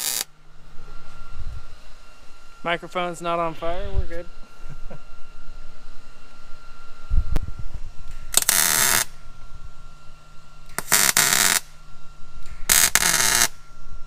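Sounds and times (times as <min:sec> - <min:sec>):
welder crackling and spattering: 0:00.0 - 0:00.3, 0:08.0 - 0:09.2, 0:10.7 - 0:11.8, 0:12.4 - 0:13.6.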